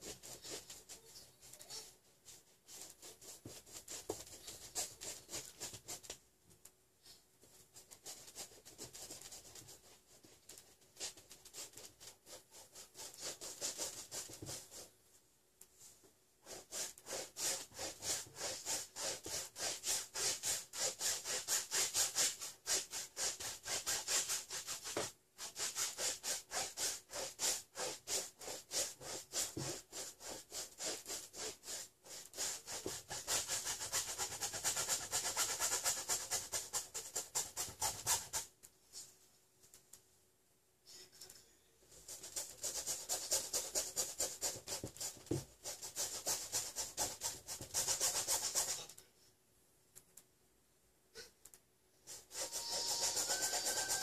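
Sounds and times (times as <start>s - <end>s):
paintbrush scrubbing on canvas: 0.0s - 6.2s, 7.4s - 15.0s, 15.8s - 39.1s, 41.9s - 48.9s, 52.0s - 54.0s.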